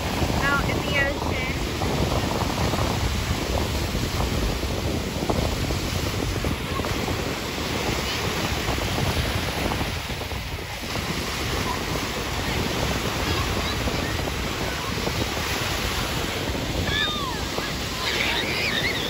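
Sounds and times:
ocean surf breaking: 0.0 - 19.0
wind buffeting microphone: 0.0 - 19.0.

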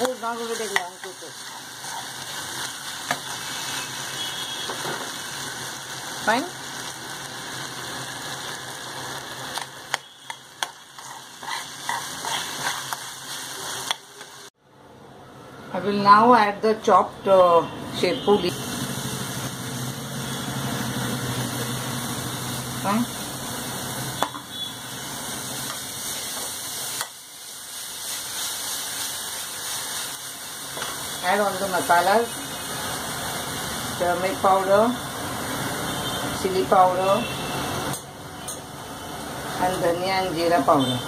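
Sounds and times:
food sizzling in hot oil: 0.0 - 14.6, 17.9 - 41.0
metal spoon scraping a pan: 0.4 - 3.8, 9.6 - 14.4.

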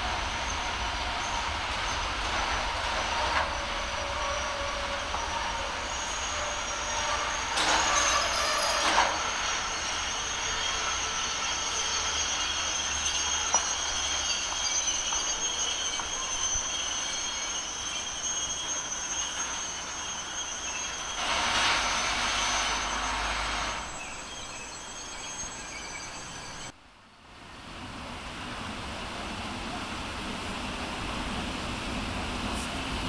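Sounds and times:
rushing noise: 0.0 - 24.7
freight train rolling: 0.0 - 26.8, 27.4 - 33.0
train wheels squealing: 0.0 - 26.8.

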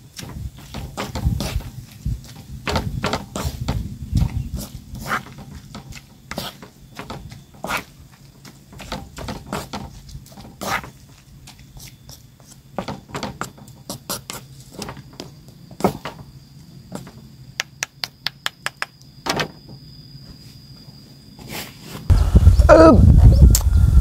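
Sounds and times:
loud low rumble: 22.1 - 24.0.

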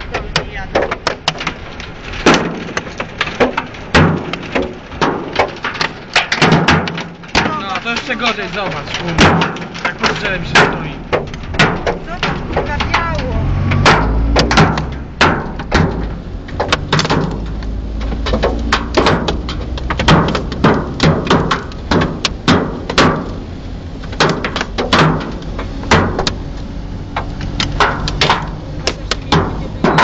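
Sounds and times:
hailstones knocking on car roof: 0.0 - 30.0
low car rumble: 0.0 - 30.0
heavy rain hiss: 3.1 - 19.2.

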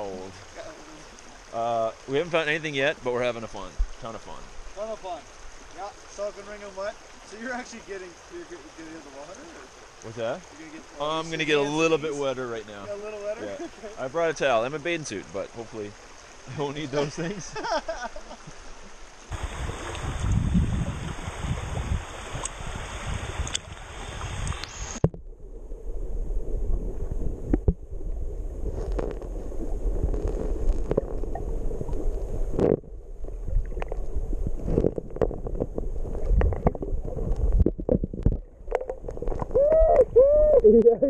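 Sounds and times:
brook water rushing: 0.0 - 41.0
muffled underwater current rumble: 19.3 - 41.0.

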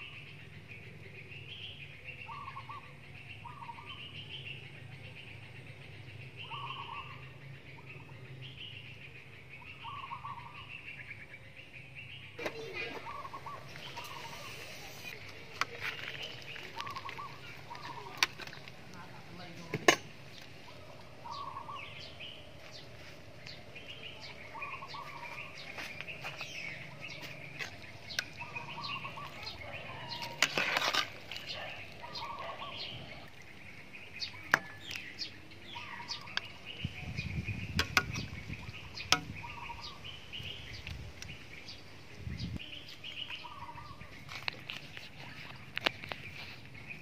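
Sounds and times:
birds calling: 0.0 - 47.0.

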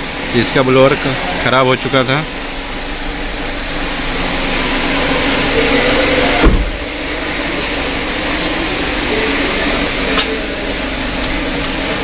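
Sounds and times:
thump: 6.4 - 6.8.

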